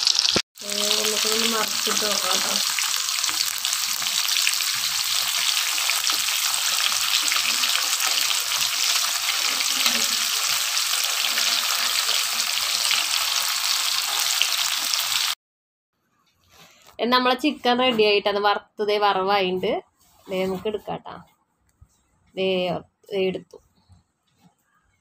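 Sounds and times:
chicken deep-frying in oil: 0.0 - 15.4.

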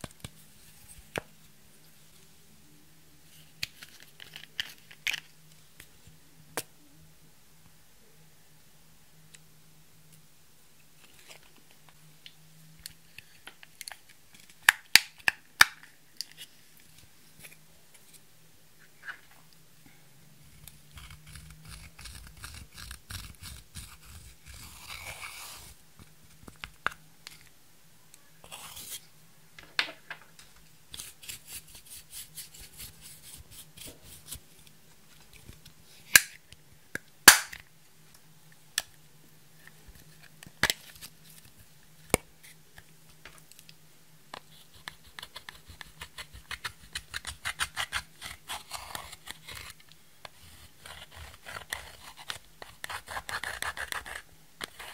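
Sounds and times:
faint steady hum: 0.0 - 54.9.

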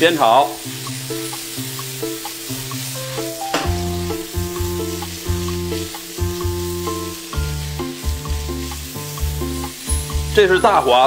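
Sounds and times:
food sizzling in a wok: 0.0 - 11.0
background music with bass line: 0.7 - 11.0
spatula tossing food: 3.8 - 10.8.

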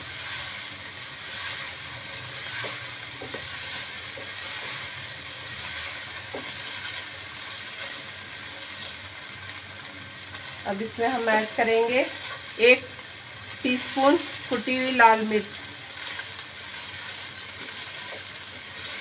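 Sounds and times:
spatula scraping pan: 0.0 - 7.0
chicken and onion sizzling: 0.0 - 19.0.

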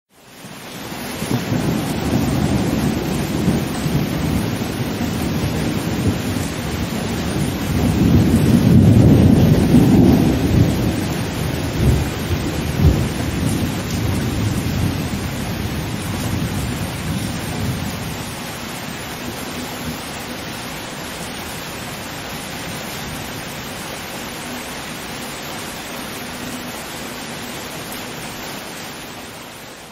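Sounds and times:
steady rain: 0.1 - 29.9
distant thunder rumbling: 1.0 - 20.6
thunder claps: 1.2 - 18.4.

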